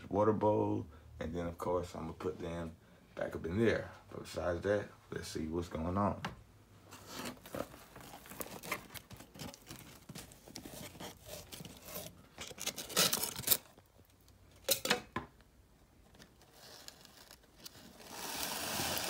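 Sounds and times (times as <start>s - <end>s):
cardboard flaps scraping: 6.9s - 13.4s
cardboard tearing: 7.0s - 13.8s, 16.2s - 19.0s.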